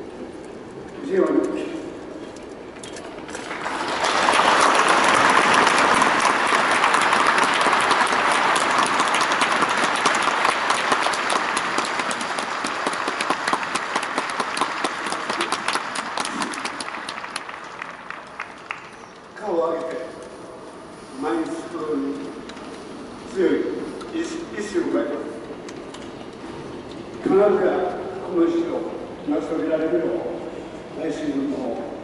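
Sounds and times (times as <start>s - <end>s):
stadium crowd applauding: 3.3s - 19.3s.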